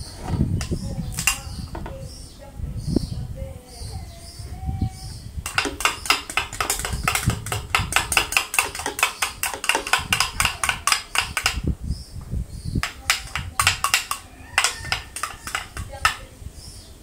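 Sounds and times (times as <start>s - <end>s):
utensil clinking against container: 0.6s - 1.6s, 5.4s - 11.6s, 12.8s - 16.3s.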